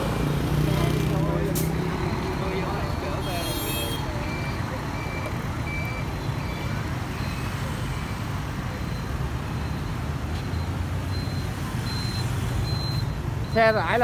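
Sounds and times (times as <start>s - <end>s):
traffic engines rumbling: 0.0s - 14.0s.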